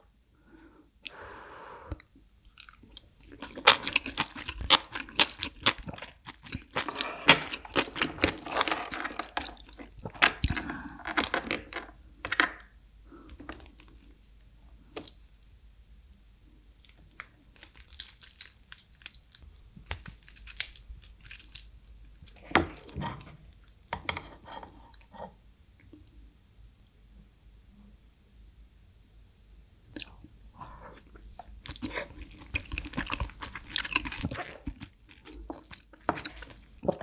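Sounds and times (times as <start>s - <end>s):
chewing: 2.4s - 11.3s, 30.0s - 37.0s
crab shell cracking: 17.6s - 21.7s.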